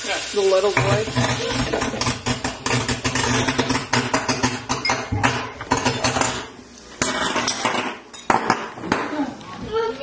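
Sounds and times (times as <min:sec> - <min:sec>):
crackling and sizzling: 0:00.0 - 0:07.7.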